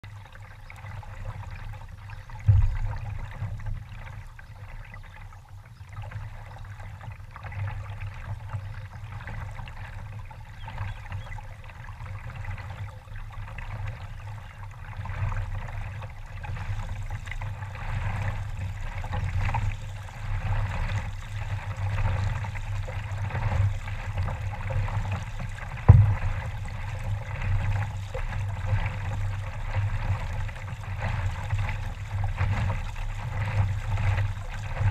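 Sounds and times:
water lapping around a kayak: 0.0s - 34.9s
dull thumps: 2.5s - 3.0s, 25.8s - 26.5s.

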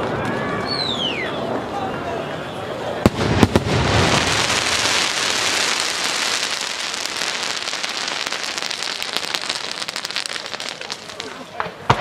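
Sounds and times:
fireworks crackling: 2.9s - 12.0s.

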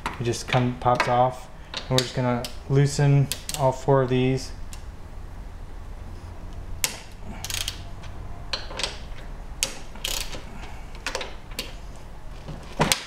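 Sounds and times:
low steady hum: 0.0s - 13.0s
socket ratchet clicking: 3.3s - 3.7s, 6.8s - 11.8s.

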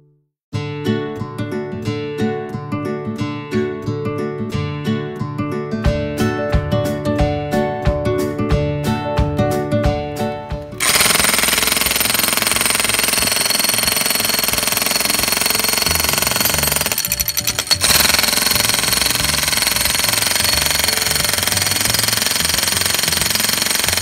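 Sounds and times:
electric hammer chiselling concrete: 10.8s - 24.0s.

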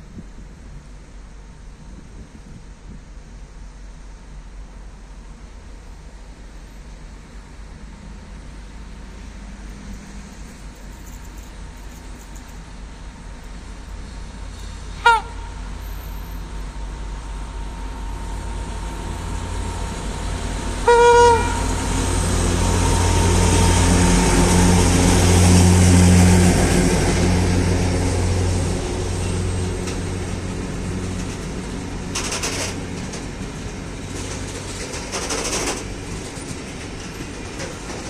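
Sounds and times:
diesel engine droning: 7.8s - 38.0s
locomotive horn blast: 14.9s - 16.3s, 20.8s - 26.1s
train wheels clattering over rails: 15.7s - 38.0s.

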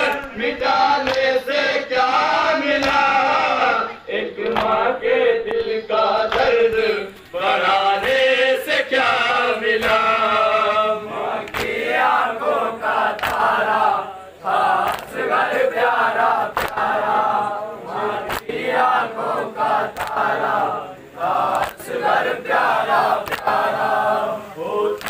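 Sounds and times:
men chanting a lament: 0.0s - 25.0s
chest-beating slaps: 1.0s - 1.3s.

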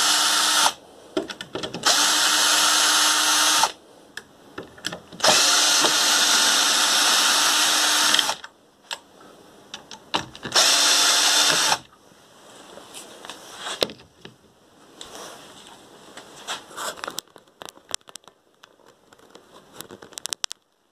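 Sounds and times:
cordless drill driving screw: 0.0s - 0.8s, 1.8s - 3.8s, 5.2s - 8.5s, 10.5s - 11.9s.

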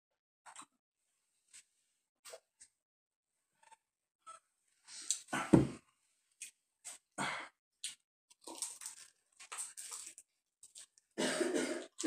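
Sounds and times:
man biting and chewing: 7.8s - 11.0s
cough: 11.2s - 12.0s.

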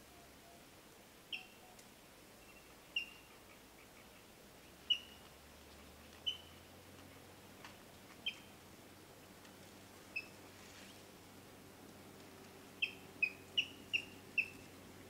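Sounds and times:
faint steady hiss: 0.0s - 15.0s
kingfisher calling: 12.8s - 14.7s.

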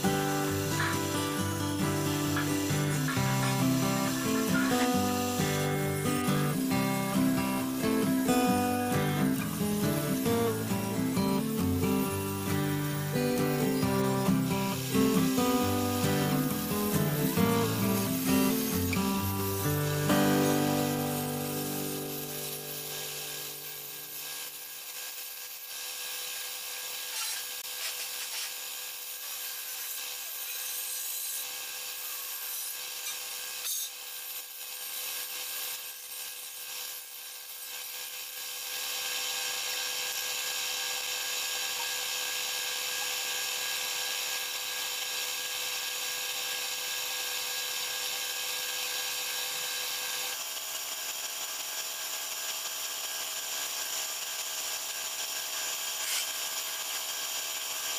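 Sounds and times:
paint spray gun hissing: 0.0s - 34.4s.

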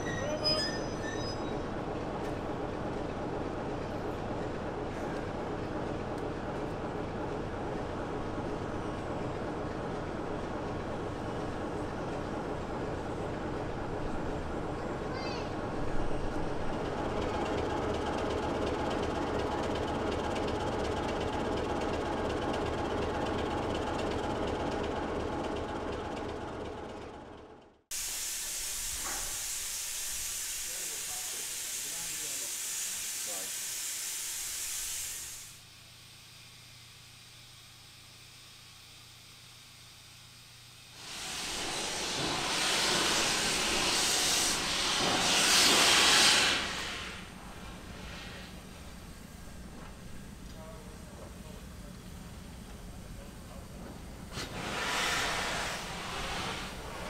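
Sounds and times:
diesel locomotive engine idling: 1.5s - 27.8s, 35.4s - 57.0s
steam locomotive venting steam: 27.9s - 57.0s.

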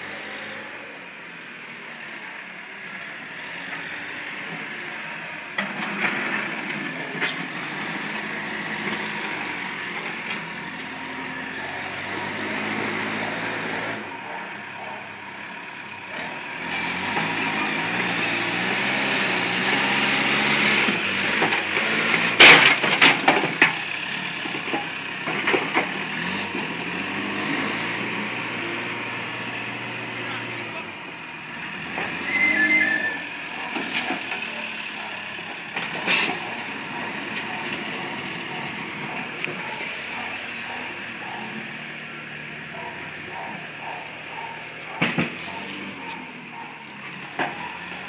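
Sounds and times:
backhoe diesel engine working: 0.0s - 48.0s.

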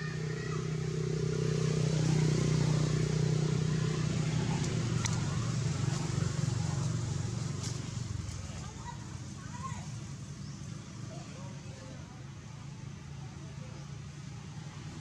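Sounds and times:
vehicle engine passing: 0.0s - 11.8s.

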